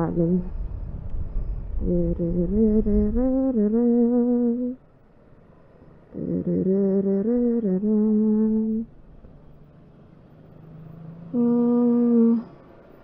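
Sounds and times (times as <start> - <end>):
woman humming through mask: 0.0 - 0.6, 1.8 - 4.8, 6.1 - 8.9, 11.3 - 12.6.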